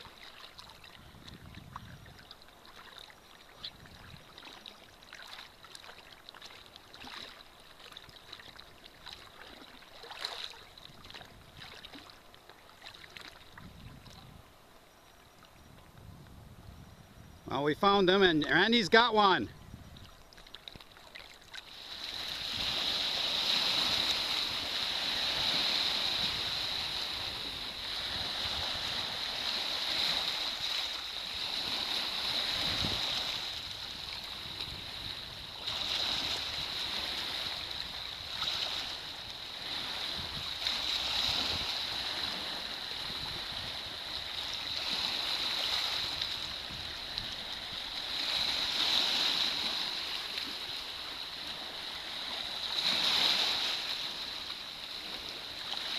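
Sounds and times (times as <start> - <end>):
small waves lapping on beach: 0.0 - 16.2, 17.6 - 55.9.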